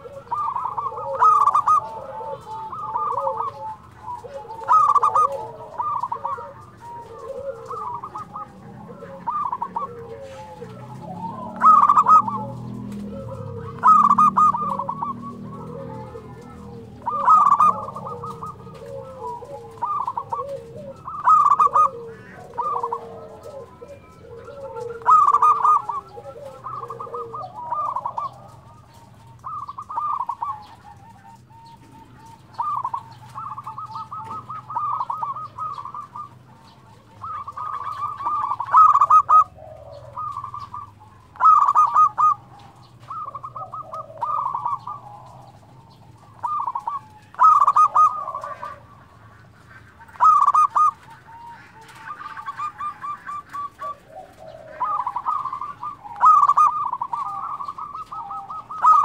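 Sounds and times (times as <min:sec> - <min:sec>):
doves cooing: 0:00.0 - 0:59.0.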